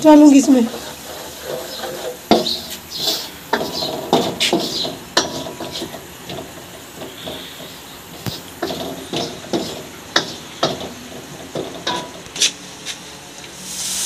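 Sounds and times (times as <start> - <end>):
wooden spoon scraping pan: 0.0 - 12.6
spoon clacking on metal pan: 1.5 - 12.2.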